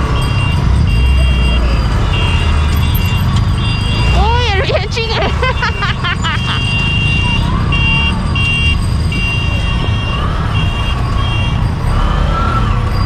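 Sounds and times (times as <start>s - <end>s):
motorcycle running alongside: 0.0s - 13.0s
road traffic: 0.0s - 13.0s
high electronic beeps: 0.3s - 10.0s.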